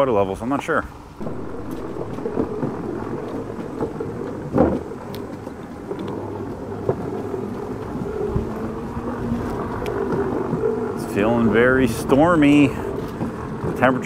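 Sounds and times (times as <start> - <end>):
tyres rumbling over wooden boardwalk: 1.2 - 5.6.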